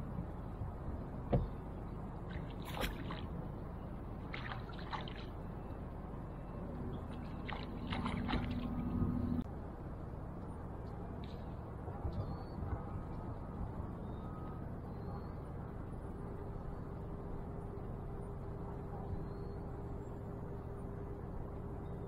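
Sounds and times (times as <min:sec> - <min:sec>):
steady low hum: 0:00.0 - 0:22.0
water splashing and sloshing: 0:01.3 - 0:09.4.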